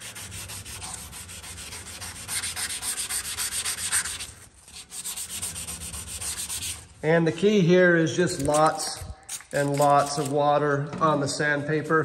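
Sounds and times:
sandpaper rasping on sheet metal: 0.0 - 7.0, 8.4 - 10.4.

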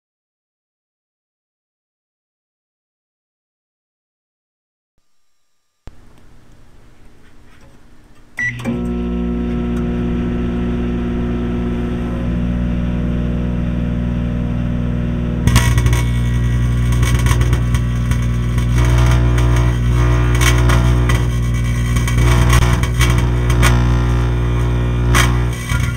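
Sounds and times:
microwave oven humming: 5.4 - 25.9
dense crackling of burning: 15.4 - 25.9.

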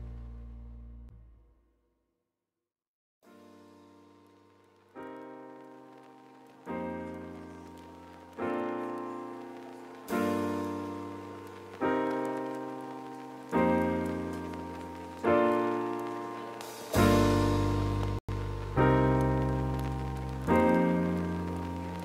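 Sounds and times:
slow keyboard chords ringing: 3.3 - 22.0.

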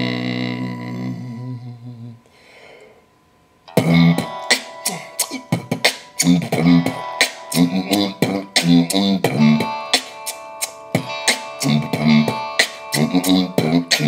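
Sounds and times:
held guitar tones: 3.6 - 14.0
beatboxing: 3.7 - 14.0.

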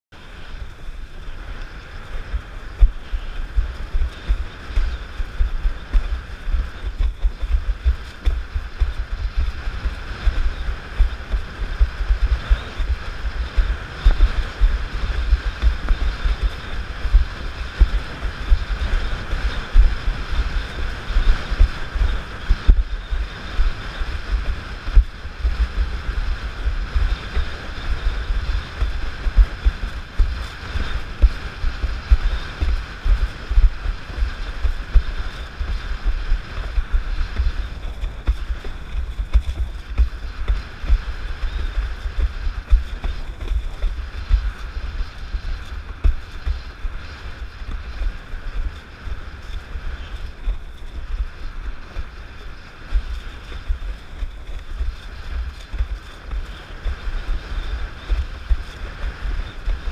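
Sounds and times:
wind buffeting microphone: 0.1 - 59.9
water and spray rushing: 0.2 - 59.9.

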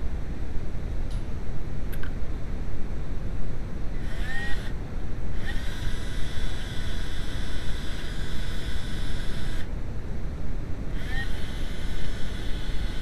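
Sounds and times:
drill motor whine: 4.0 - 9.7, 10.9 - 13.0.

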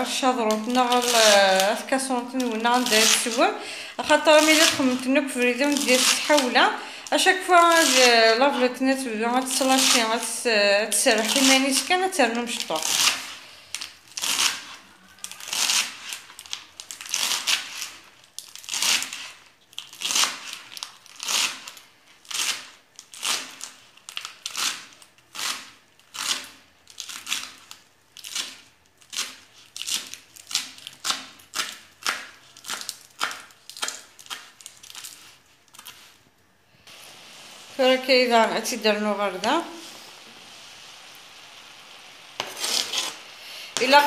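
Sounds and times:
knife slicing on cutting board: 42.4 - 43.3.

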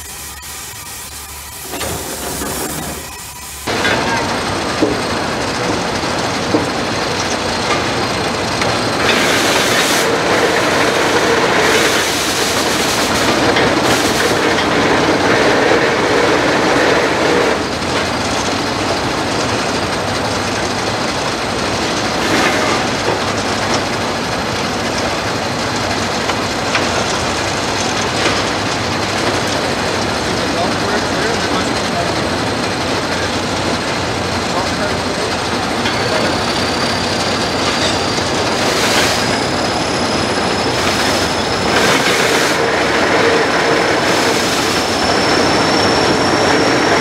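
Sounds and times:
steam engine chuffing and hissing: 0.0 - 47.0.

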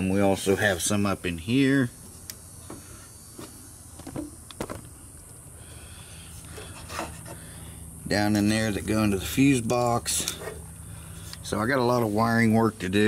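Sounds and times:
low steady background hum: 0.0 - 13.0.

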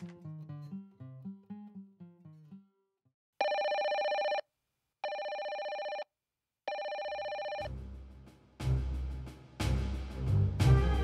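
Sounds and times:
electronic telephone ringer trilling: 3.4 - 4.4, 5.0 - 6.1, 6.7 - 7.7
music with a beat: 7.7 - 11.0.

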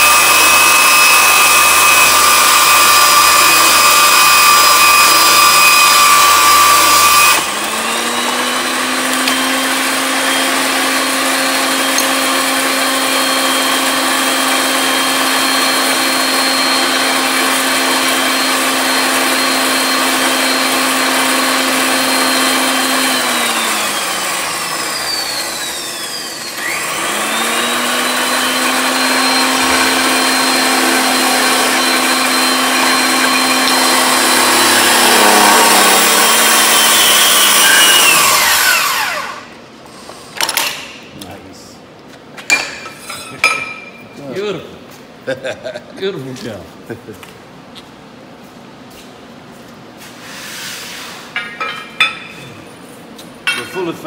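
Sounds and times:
electric motor whining: 0.0 - 39.6.

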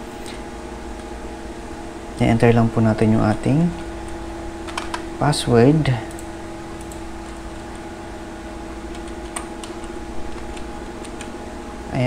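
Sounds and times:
steady machine hum: 0.0 - 12.0
keyboard keys clicking: 6.1 - 7.8, 8.9 - 11.3.

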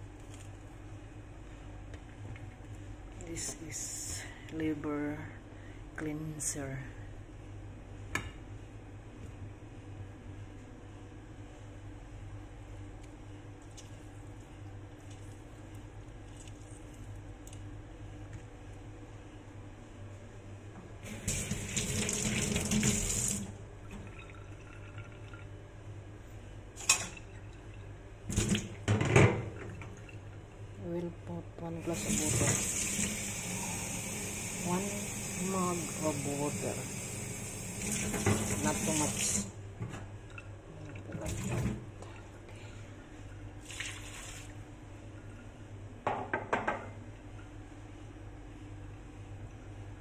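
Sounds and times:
water dripping and sloshing in mug: 23.9 - 25.5, 26.8 - 28.8, 40.2 - 42.3, 43.6 - 44.6.

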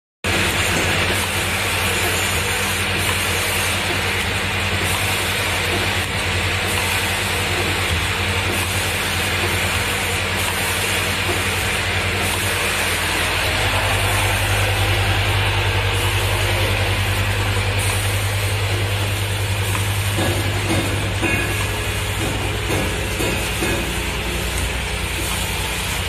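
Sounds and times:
machine humming and hissing: 0.3 - 26.0.

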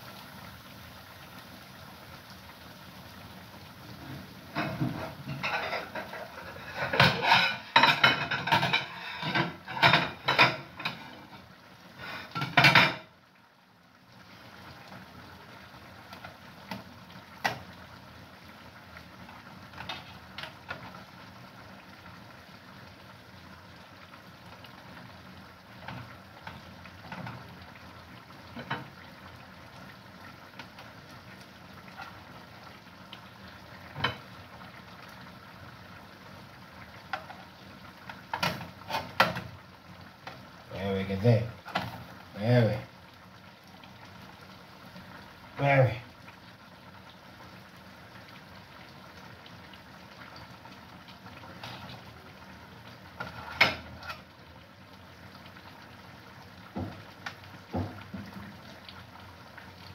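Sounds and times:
dishes and cutlery clattering: 4.5 - 11.2, 12.4 - 13.0.

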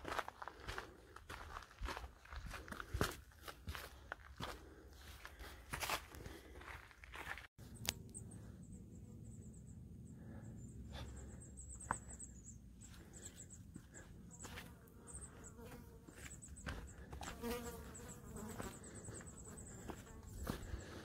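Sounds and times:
footsteps on trail: 0.0 - 7.6, 12.8 - 21.0.

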